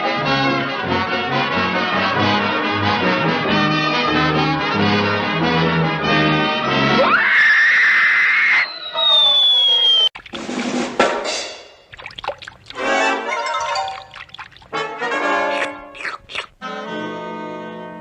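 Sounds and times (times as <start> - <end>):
brass-led orchestral cartoon music: 0.0 - 7.0, 12.8 - 13.7, 14.7 - 15.9, 16.6 - 18.0.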